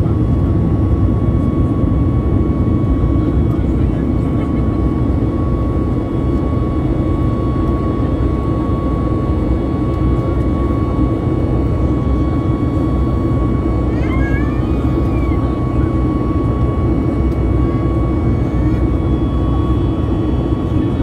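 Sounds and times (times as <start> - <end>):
jet engines rumbling in cabin: 0.0 - 21.0.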